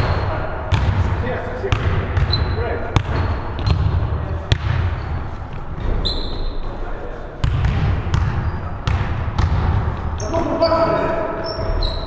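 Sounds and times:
sneaker squeak: 0.0s - 0.4s, 2.2s - 3.9s, 4.9s - 6.8s, 8.2s - 8.9s, 10.2s - 12.0s
basketball bouncing on hardwood: 7.4s - 9.9s.

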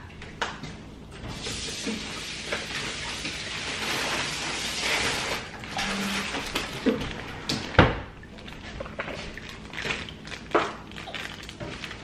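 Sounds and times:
rustling and handling noise: 2.6s - 7.8s, 8.4s - 12.0s.

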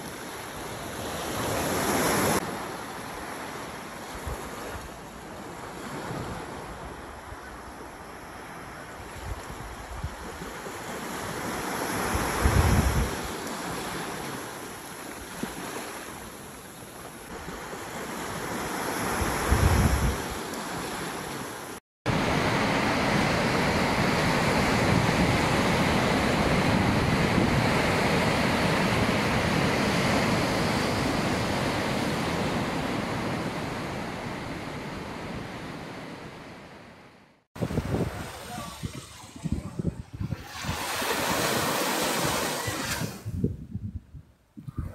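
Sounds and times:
surf washing over shallows: 0.0s - 43.5s
wind buffeting microphone: 12.0s - 13.3s, 19.0s - 20.4s, 37.6s - 41.5s, 42.1s - 44.9s
waves breaking on rocks: 37.6s - 43.2s.

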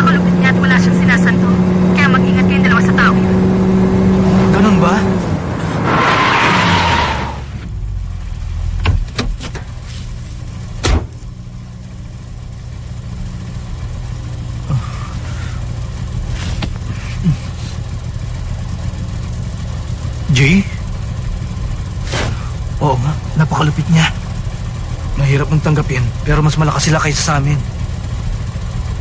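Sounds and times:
car engine humming: 0.0s - 29.0s
thump: 10.8s - 11.2s.

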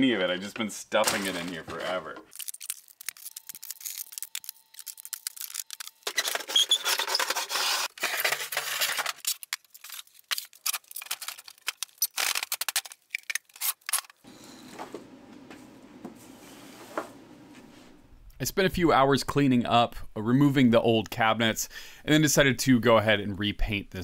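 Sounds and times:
harsh scraping noise: 6.0s - 8.7s.

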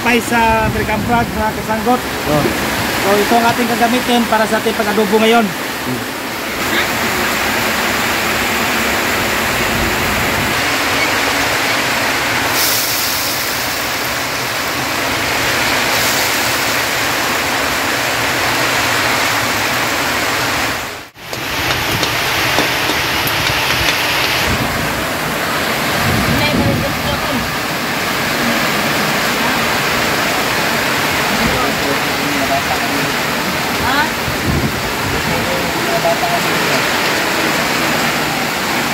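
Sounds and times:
fat sizzling in wok: 12.5s - 14.1s.

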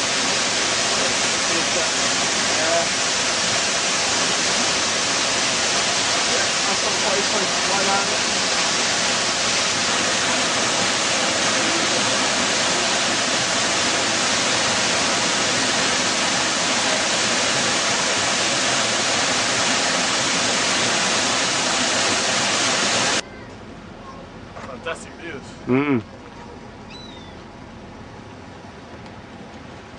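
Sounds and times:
waterfall rushing over rock: 0.0s - 23.2s.

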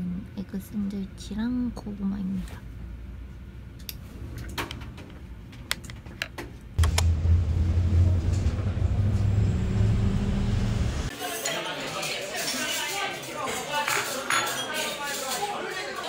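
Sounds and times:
vehicle rumble and hum: 6.8s - 11.1s.

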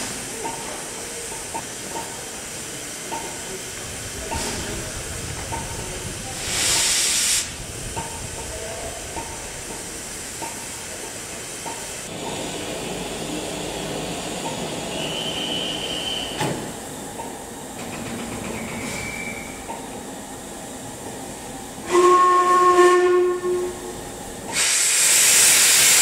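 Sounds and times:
steam hiss: 0.0s - 16.9s, 24.4s - 26.0s
train wheels clicking on rail joints: 0.0s - 20.0s
faint high squeal: 18.5s - 19.6s.

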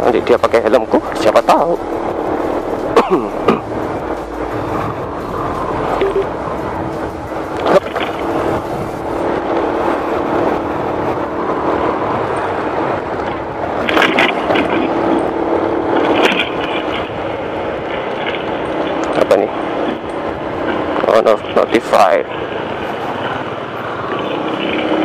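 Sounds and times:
wind noise on microphone: 0.0s - 25.0s.

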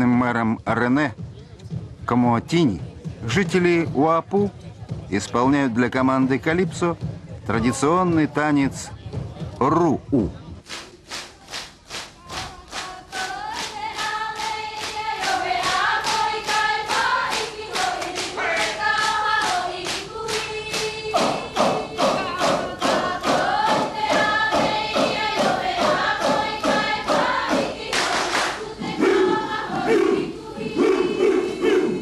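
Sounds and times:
rhythmic hand claps: 10.6s - 30.8s
group chanting in unison: 12.8s - 32.0s.

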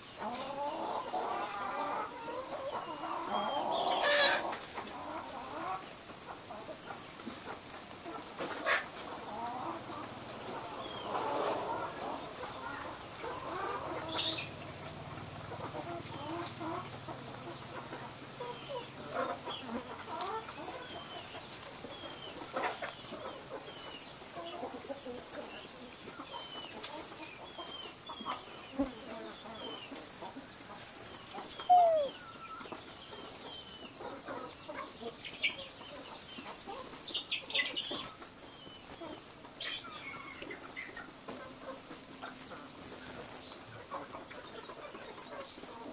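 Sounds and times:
bird chirps and calls: 30.5s - 41.0s.

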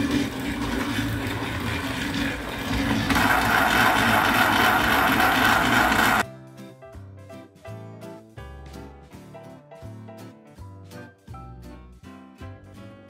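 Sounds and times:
toy train motor rattle: 0.0s - 6.2s.

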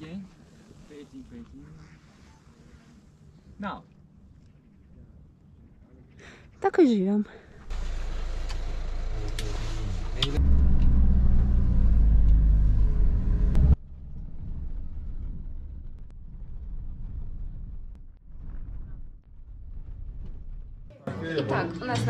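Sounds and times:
minibus engine rumbling: 7.4s - 16.0s
road noise from driving vehicle: 7.6s - 16.0s.

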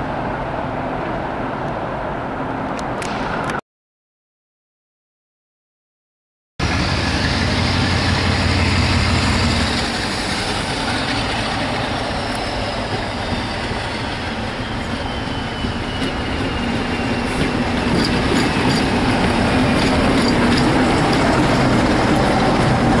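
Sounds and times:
diesel locomotive engine passing: 6.6s - 23.0s.

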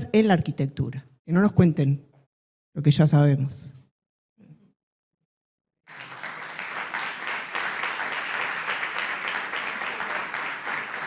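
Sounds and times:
audience applauding: 5.9s - 11.0s.

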